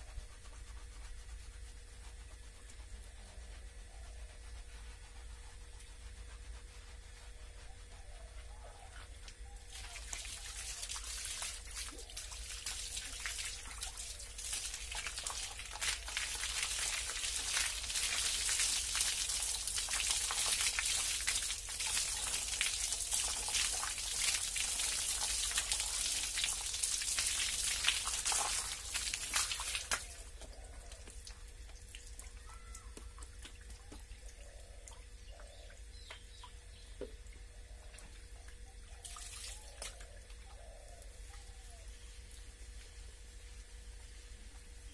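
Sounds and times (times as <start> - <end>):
hose water splashing on floor: 9.7 - 32.3, 39.0 - 40.1.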